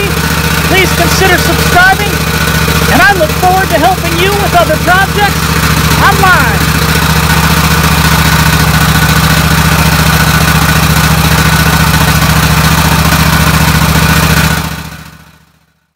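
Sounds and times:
riding mower engine idling: 0:00.0 - 0:15.6.

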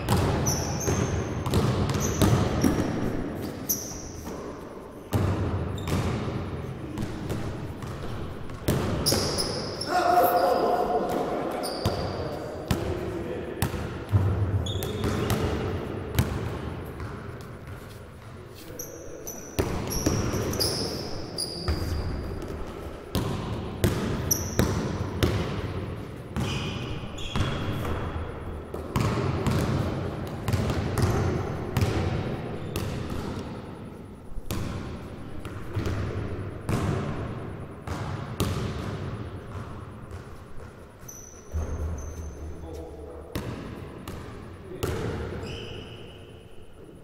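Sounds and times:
sneaker squeaks: 0:00.0 - 0:04.7, 0:05.7 - 0:06.2, 0:07.0 - 0:12.8, 0:14.5 - 0:15.6, 0:17.0 - 0:23.2, 0:24.2 - 0:25.3, 0:26.4 - 0:28.2, 0:31.0 - 0:31.9, 0:32.6 - 0:33.4, 0:39.4 - 0:43.6, 0:44.8 - 0:46.7
basketballs bouncing on gym floor: 0:00.0 - 0:09.9, 0:11.0 - 0:13.0, 0:13.6 - 0:18.4, 0:19.5 - 0:33.6, 0:34.4 - 0:42.1, 0:43.3 - 0:45.5.

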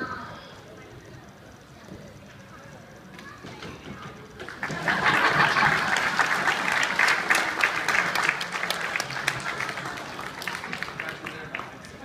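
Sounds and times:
audience clapping: 0:04.4 - 0:12.0.

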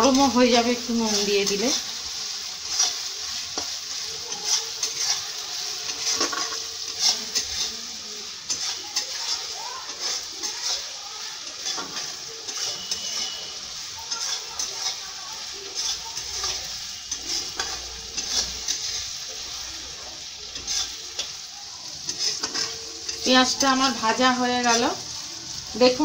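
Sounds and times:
onions sizzling in oil: 0:00.0 - 0:26.0
spatula scraping a pan: 0:00.0 - 0:26.0.

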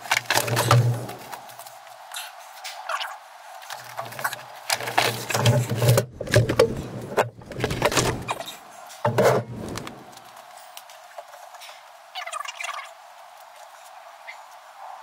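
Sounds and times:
knocking and clattering plastic pipes: 0:00.0 - 0:01.2, 0:03.7 - 0:08.4, 0:09.0 - 0:09.8.

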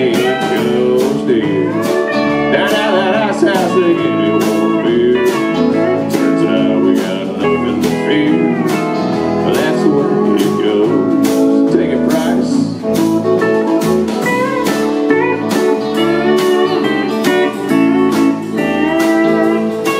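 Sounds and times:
drum kit steady beat: 0:00.0 - 0:19.9
electric bass: 0:00.0 - 0:19.9
electric guitar: 0:00.0 - 0:19.9
pedal steel guitar sliding notes: 0:00.0 - 0:19.9.

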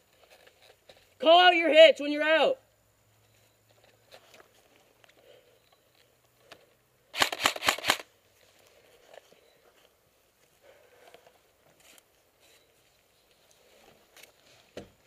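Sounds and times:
airsoft rifle shots: 0:07.1 - 0:08.1.

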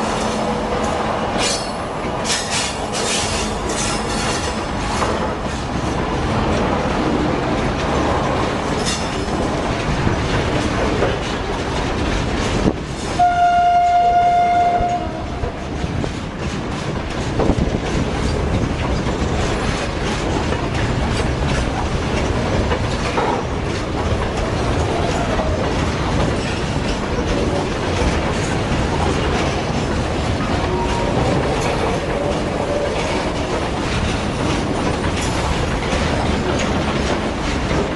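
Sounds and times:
freight wagons clacking over rails: 0:00.0 - 0:37.9
locomotive horn: 0:13.2 - 0:15.4.

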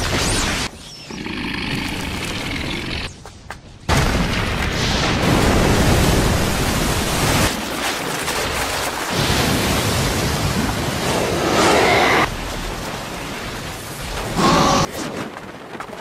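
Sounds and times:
explosion with rushing debris: 0:03.9 - 0:16.0.

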